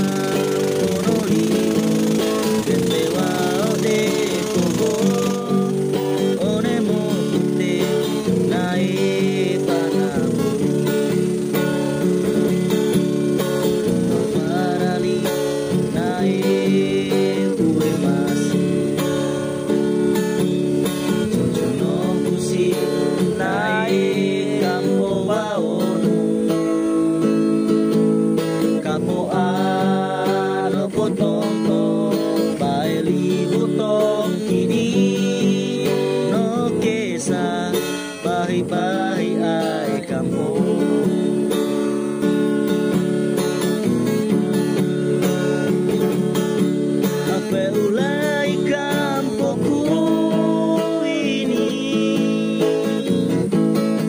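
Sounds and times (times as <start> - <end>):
gliding melody line: 0.0 - 28.8
strummed acoustic guitar: 0.0 - 54.0.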